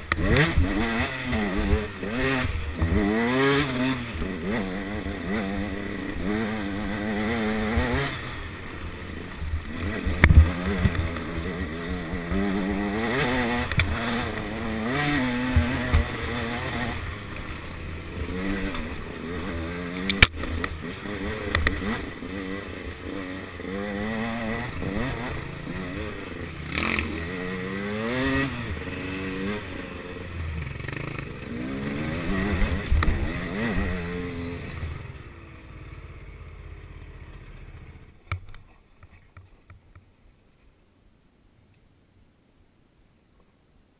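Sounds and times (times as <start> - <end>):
motorcycle engine revving: 0.0 - 38.2.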